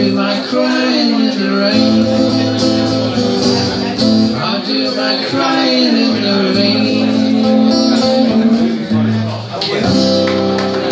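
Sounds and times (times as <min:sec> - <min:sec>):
man singing long notes: 0:00.0 - 0:10.2
acoustic guitar strumming: 0:00.0 - 0:10.9.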